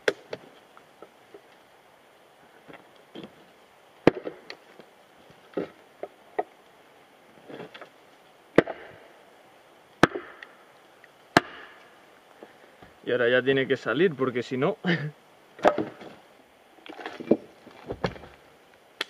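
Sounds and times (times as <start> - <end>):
maul striking steel wedge: 11.4 - 11.8.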